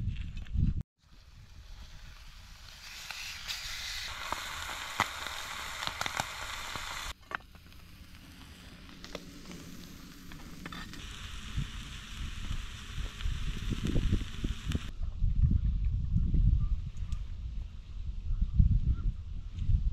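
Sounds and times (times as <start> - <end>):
flatbreads sizzling in oil: 1.1 - 7.2, 8.0 - 14.9.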